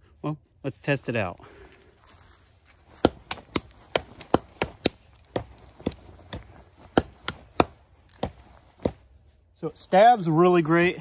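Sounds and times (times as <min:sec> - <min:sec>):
knife stabbing into tree trunk: 0:02.8 - 0:09.2.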